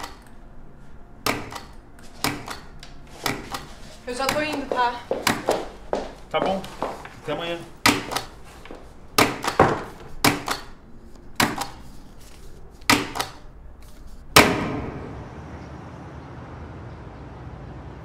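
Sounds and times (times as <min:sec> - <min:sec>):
steady background noise: 0:00.0 - 0:18.0
rubber stamp clacking on paper: 0:01.2 - 0:05.7, 0:07.8 - 0:11.8, 0:12.8 - 0:14.7.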